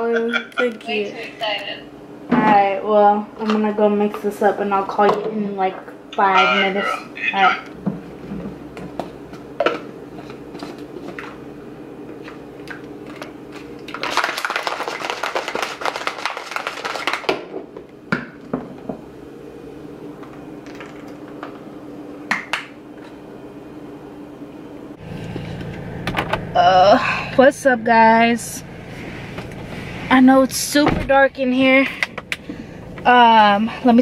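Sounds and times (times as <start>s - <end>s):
shaker bottle rattling and sloshing: 13.1s - 17.4s.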